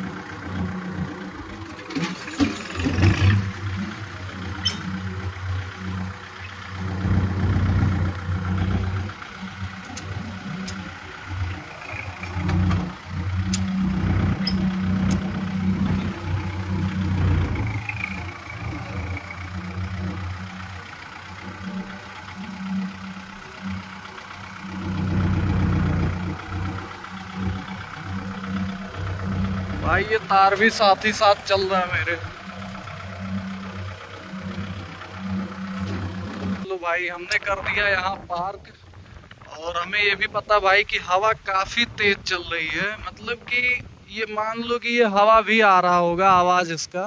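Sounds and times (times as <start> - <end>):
tractor diesel engine running: 0.0 - 46.9
faint clicks: 9.8 - 10.9, 11.8 - 13.8, 14.4 - 16.2.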